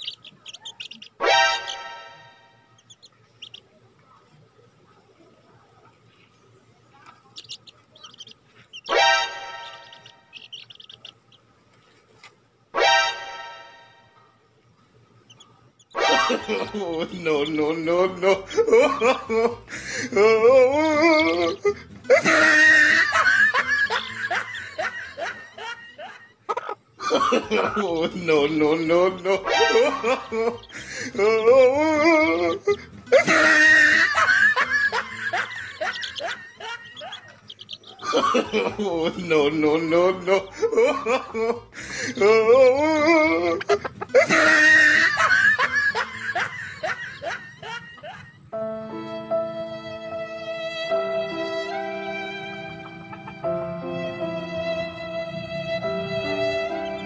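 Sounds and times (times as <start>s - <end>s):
music: 1.2s - 2.9s, 8.9s - 10.4s, 12.8s - 14.3s, 16.0s - 25.0s, 27.4s - 36.2s, 48.4s - 57.0s
comedy laughter: 16.0s - 48.5s.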